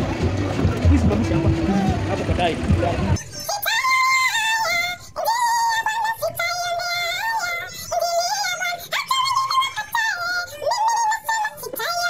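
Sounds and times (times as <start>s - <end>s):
high-pitched singing voice: 3.2s - 12.0s.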